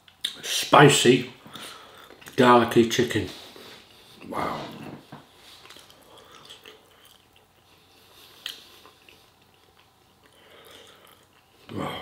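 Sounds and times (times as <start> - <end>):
man chewing food: 1.4 - 2.4, 3.6 - 11.7.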